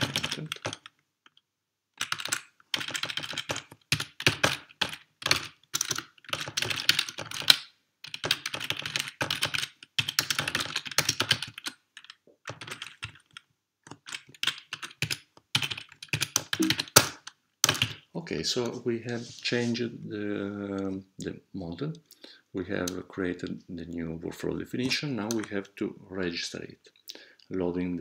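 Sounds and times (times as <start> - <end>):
computer keyboard typing: 0.0 - 1.4, 2.0 - 18.0, 24.8 - 25.6.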